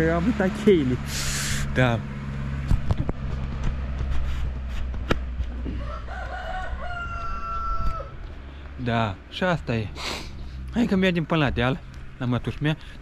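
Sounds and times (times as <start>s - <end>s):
rooster crowing: 5.6s - 8.3s.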